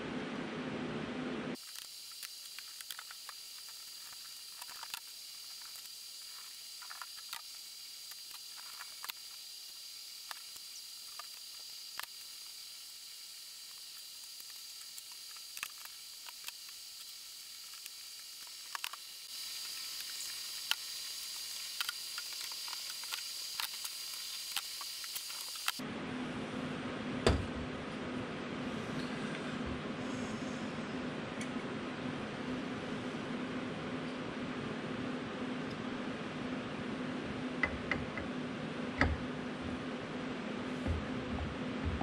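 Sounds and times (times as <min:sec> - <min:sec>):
small parts clicking and tapping: 0:01.6 - 0:12.6, 0:13.6 - 0:25.8
steady hiss: 0:01.6 - 0:25.8.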